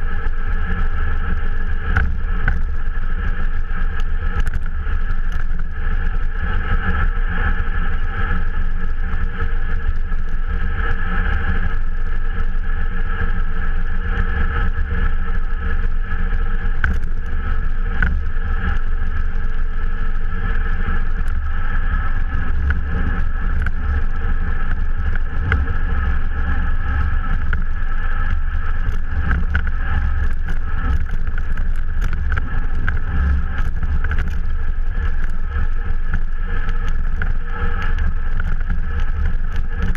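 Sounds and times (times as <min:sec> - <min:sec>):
bicycle tyre rumble: 0:00.0 - 0:39.9
constant hum: 0:00.0 - 0:39.9
loud wind: 0:00.0 - 0:39.9.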